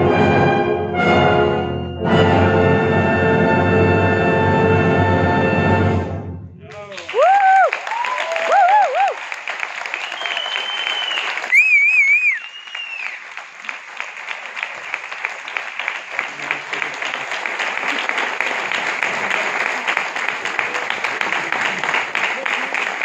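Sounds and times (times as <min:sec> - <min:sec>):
audience applauding: 0:06.7 - 0:23.0
high wavering cheers: 0:06.8 - 0:09.3, 0:09.9 - 0:13.2.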